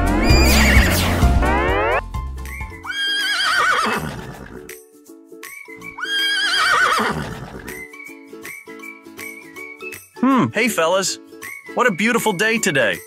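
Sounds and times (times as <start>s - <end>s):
background music: 0.0s - 13.0s
horse whinnying: 2.8s - 4.7s, 5.9s - 7.8s.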